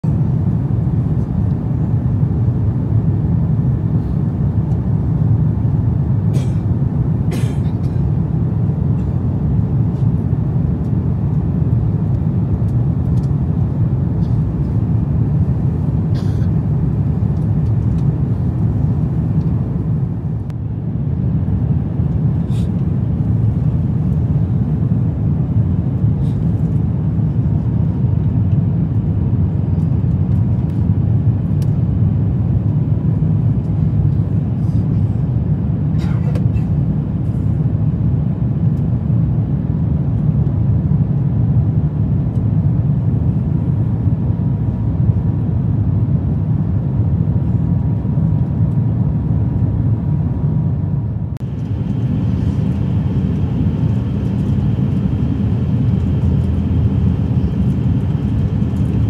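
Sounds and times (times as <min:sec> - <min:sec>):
airliner cabin rumble: 0:00.0 - 0:59.0.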